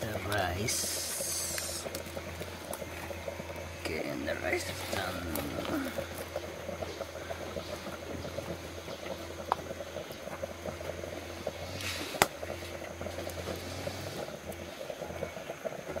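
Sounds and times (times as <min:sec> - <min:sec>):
pots simmering: 0:00.0 - 0:16.0
wood fire crackling: 0:00.0 - 0:16.0
sharp snap of fire: 0:11.8 - 0:12.4.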